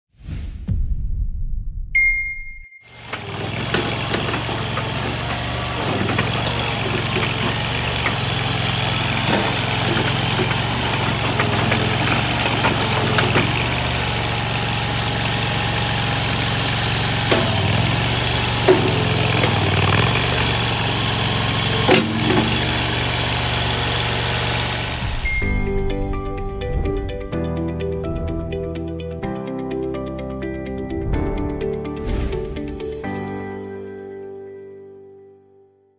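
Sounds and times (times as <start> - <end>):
engine running: 2.9 - 29.3
sharp clanks: 3.0 - 25.9.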